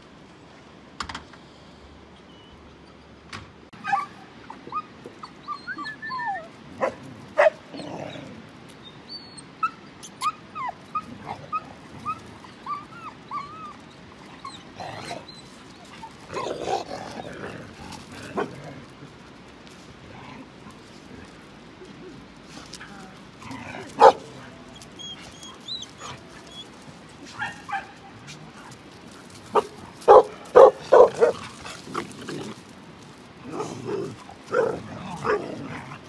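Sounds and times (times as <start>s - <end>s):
dogs whining and yelping: 3.8s - 6.6s, 9.1s - 17.2s, 24.0s - 26.8s
dogs barking: 6.8s - 7.6s, 24.0s - 24.3s, 29.5s - 31.5s.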